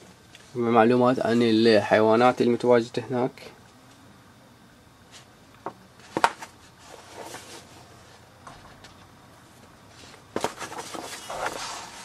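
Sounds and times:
booklet pages rustling: 0:06.0 - 0:07.9, 0:09.9 - 0:12.0.

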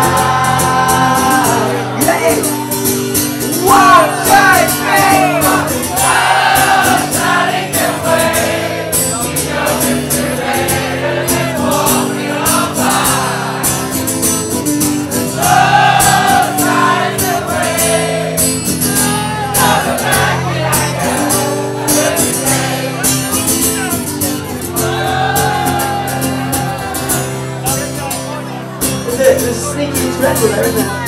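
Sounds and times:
person singing: 0:00.0 - 0:02.7.

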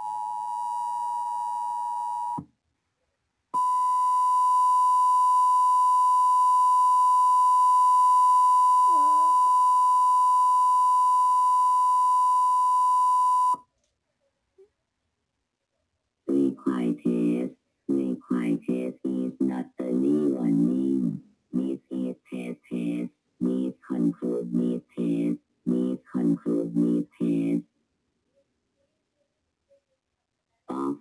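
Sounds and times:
two-tone attention signal: 0:03.6 - 0:13.6.

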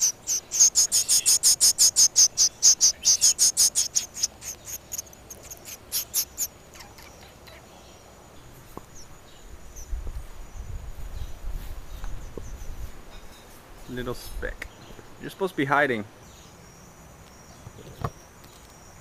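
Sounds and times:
fledgling bird begging chirps: 0:00.0 - 0:08.1.

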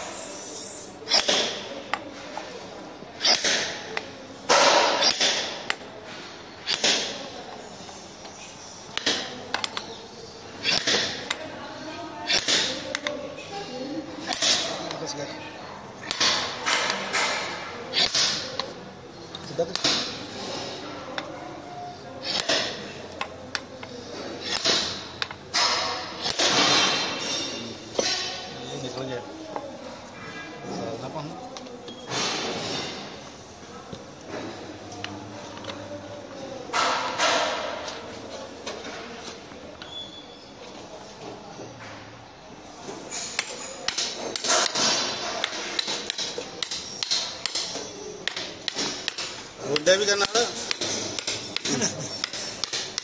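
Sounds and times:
hammer striking hammer: 0:01.1 - 0:02.0, 0:03.2 - 0:05.9, 0:06.7 - 0:07.3, 0:08.9 - 0:09.8, 0:19.7 - 0:20.3, 0:43.4 - 0:53.0
hammer striking steel: 0:01.1 - 0:02.0, 0:03.2 - 0:05.9, 0:06.7 - 0:07.4, 0:08.9 - 0:09.8, 0:12.3 - 0:13.0.

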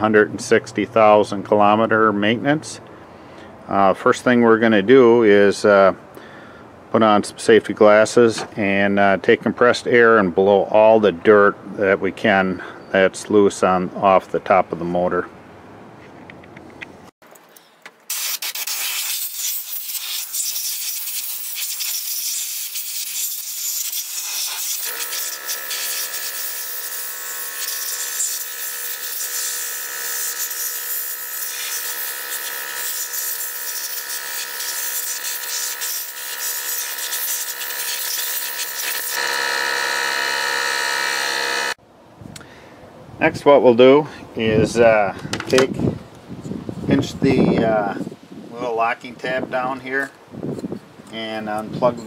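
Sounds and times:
compressed air blow gun hissing: 0:18.0 - 0:39.2.

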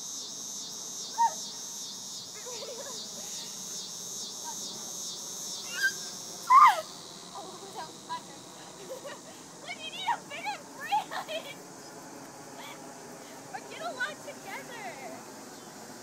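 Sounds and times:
cicadas droning: 0:00.0 - 0:16.0
short sliding cries: 0:05.7 - 0:06.9.

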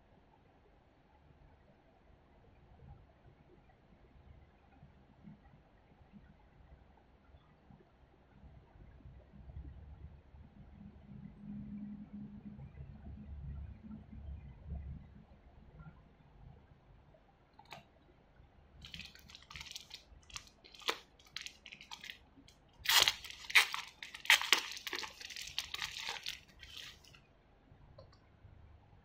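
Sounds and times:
plastic bag crinkling: 0:18.8 - 0:22.2, 0:22.8 - 0:27.2.

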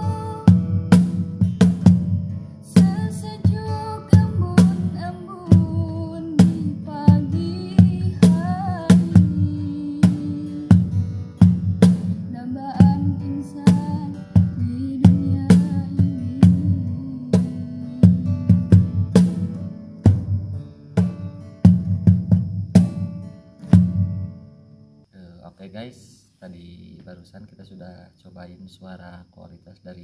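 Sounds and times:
young woman singing: 0:00.0 - 0:01.1, 0:02.6 - 0:11.1, 0:12.1 - 0:18.7
cajon hand drumming: 0:00.0 - 0:24.2
strummed acoustic guitar: 0:00.0 - 0:24.7.

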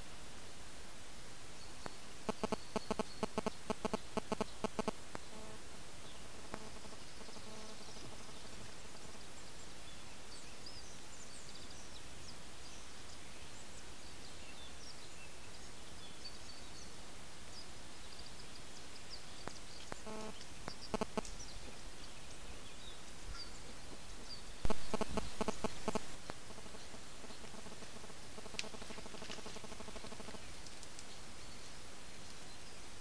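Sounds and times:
small birds chirping: 0:01.5 - 0:33.0
camera hiss: 0:01.8 - 0:09.3, 0:19.5 - 0:21.4, 0:24.6 - 0:32.4.

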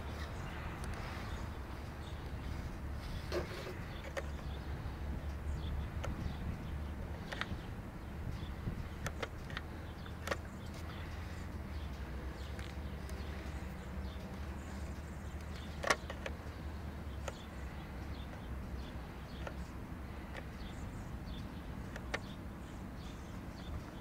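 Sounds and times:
sharp clicks: 0:08.9 - 0:20.7.

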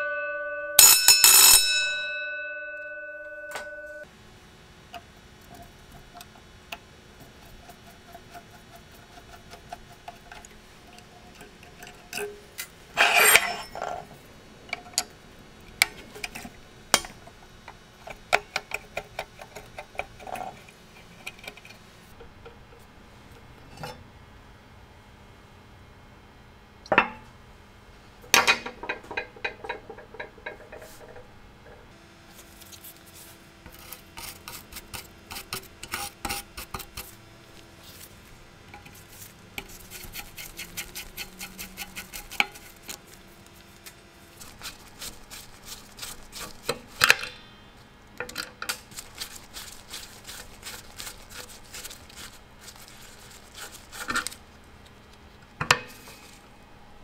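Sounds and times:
metal parts clinking together: 0:12.2 - 0:14.0.

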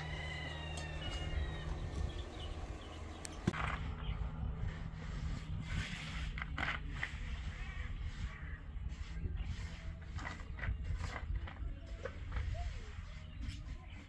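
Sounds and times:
rooster crowing: 0:00.0 - 0:02.0
steady low hum: 0:00.0 - 0:14.0.

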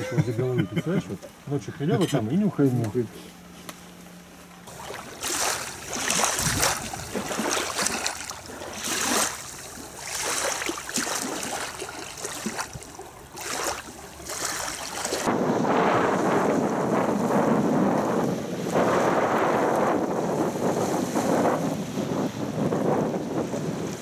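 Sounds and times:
water rushing: 0:04.6 - 0:24.0
rushing wind: 0:04.8 - 0:10.6, 0:11.2 - 0:24.0.

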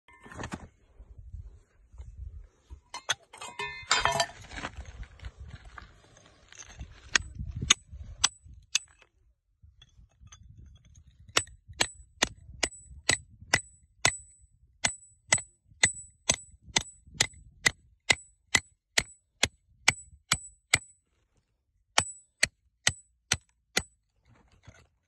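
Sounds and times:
knocks and scraping on stone: 0:02.9 - 0:04.8, 0:23.7 - 0:25.0
hammer striking steel chisel: 0:11.3 - 0:20.9, 0:22.0 - 0:24.0.

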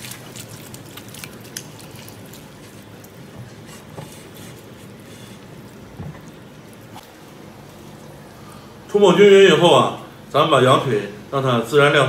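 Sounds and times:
hands squishing wet meat: 0:00.0 - 0:07.0.

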